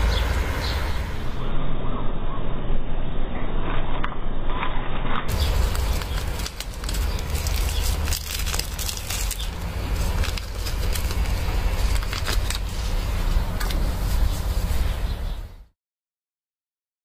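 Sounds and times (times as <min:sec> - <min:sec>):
low rumble: 0:00.0 - 0:15.7
plastic bag crinkling: 0:05.3 - 0:15.2.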